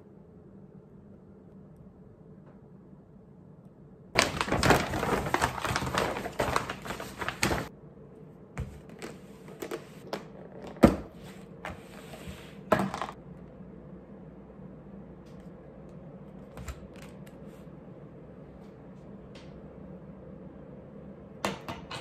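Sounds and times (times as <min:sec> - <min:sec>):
plastic packaging crackling: 0:04.2 - 0:07.7.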